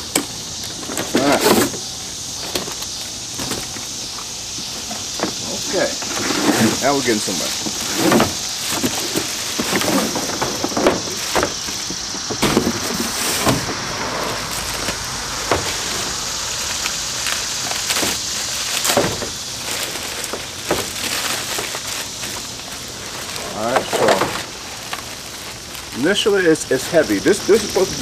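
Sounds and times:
plastic bag crinkling: 0:06.6 - 0:28.0.

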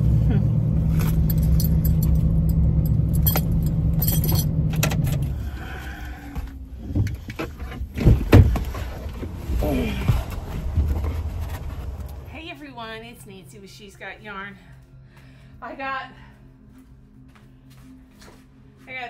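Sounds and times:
car engine idling: 0:00.0 - 0:12.6
metal clasp clicking and jingling: 0:01.2 - 0:05.3
loud thumps: 0:06.9 - 0:12.5.

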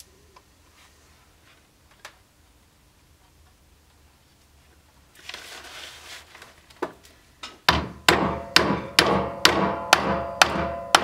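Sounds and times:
hammer striking metal: 0:07.7 - 0:11.0.

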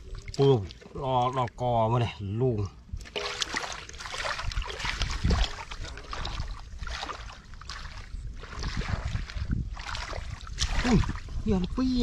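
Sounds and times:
hands sloshing through muddy water: 0:03.0 - 0:12.0.

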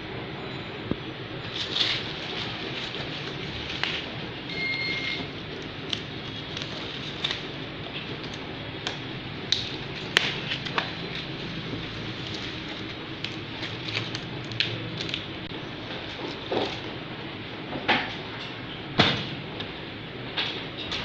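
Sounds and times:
packing sheet crinkling and crackling: 0:01.4 - 0:16.9.

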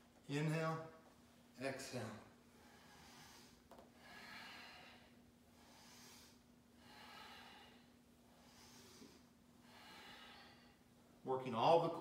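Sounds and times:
faint steady hum: 0:00.0 - 0:12.0
slow deep breathing: 0:02.4 - 0:11.0.

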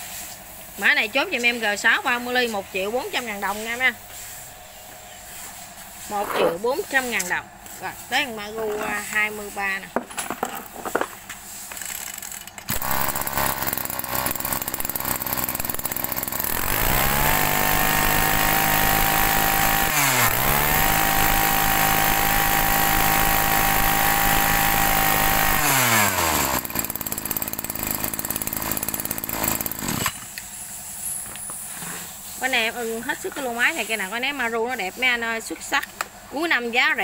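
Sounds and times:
brush cutter engine revving: 0:06.0 - 0:09.6, 0:12.0 - 0:30.4.

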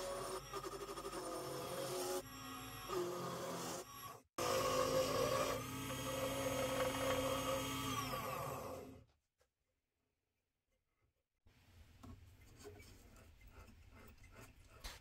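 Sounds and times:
electric power tool motor whining: 0:01.4 - 0:09.0.

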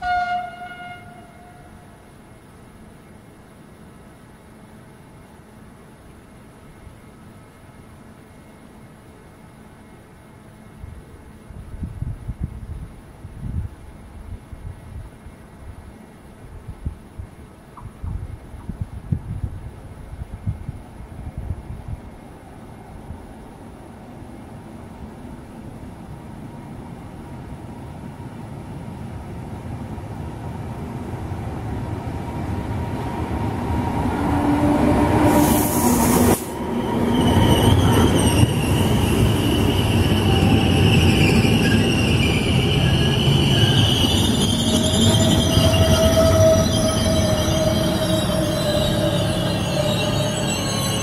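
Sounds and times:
train wheels rumbling on rail: 0:10.4 - 0:51.0
locomotive hiss: 0:35.1 - 0:37.3
wheel and brake squeal: 0:35.4 - 0:51.0.

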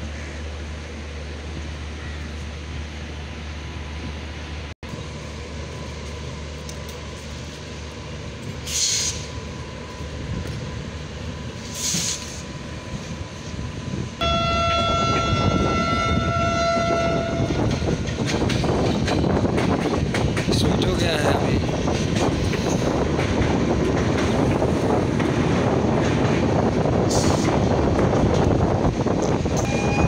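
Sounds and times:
train running on track: 0:00.0 - 0:30.0
short hisses: 0:08.6 - 0:09.4, 0:11.6 - 0:12.5
train horn blast: 0:14.2 - 0:17.7, 0:29.6 - 0:30.0.

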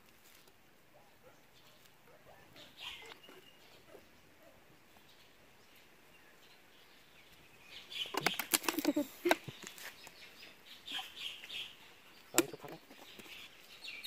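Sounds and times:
plastic bottle crackling: 0:08.0 - 0:10.2.

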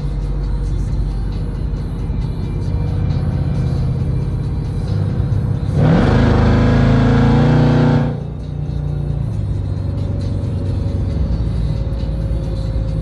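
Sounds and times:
car engine revving: 0:02.6 - 0:09.4.

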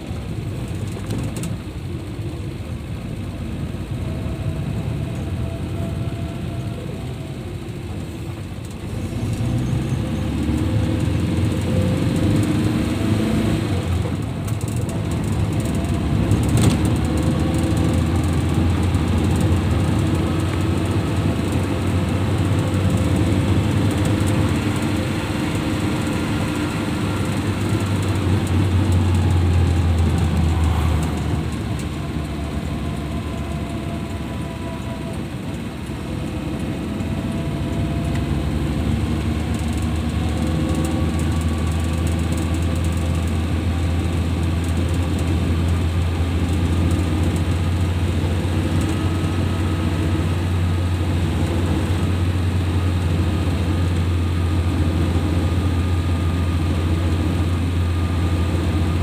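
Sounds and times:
car engine and road noise: 0:00.0 - 0:59.0.

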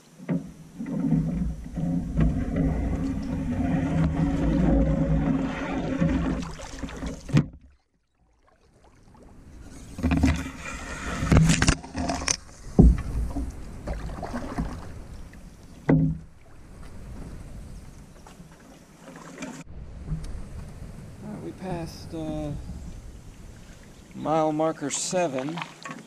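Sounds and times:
water sloshing and swishing: 0:00.0 - 0:26.0
hollow knocks of canoe paddle: 0:15.8 - 0:16.3.

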